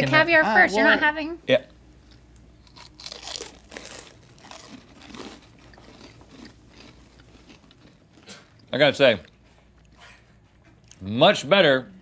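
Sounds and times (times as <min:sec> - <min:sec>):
people chewing and crunching: 0:01.9 - 0:11.1.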